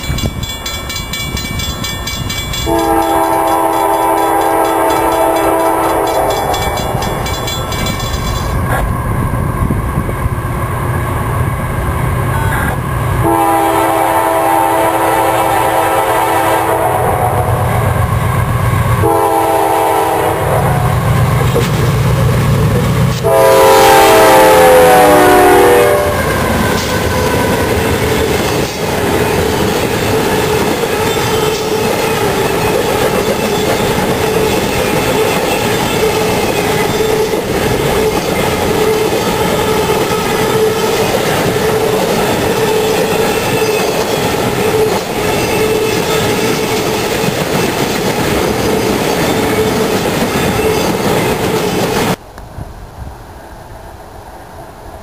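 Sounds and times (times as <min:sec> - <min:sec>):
train wheels clacking over rail joints: 0:00.0 - 0:08.8, 0:26.3 - 0:52.2
train rumble: 0:00.0 - 0:55.0
locomotive air horn blasts: 0:02.7 - 0:06.3, 0:13.2 - 0:17.5, 0:19.0 - 0:20.9, 0:23.2 - 0:27.7.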